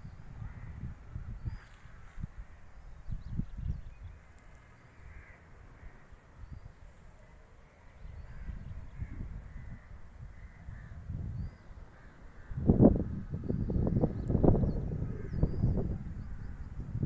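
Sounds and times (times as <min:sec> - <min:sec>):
wind gusting on microphone: 0:00.0 - 0:04.4, 0:08.0 - 0:17.0
faint bird caws: 0:00.3 - 0:02.8, 0:04.4 - 0:16.7.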